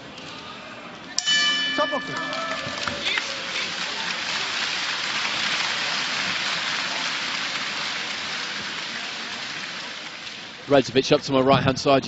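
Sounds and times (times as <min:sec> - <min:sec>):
crowd applauding: 0:01.8 - 0:10.7.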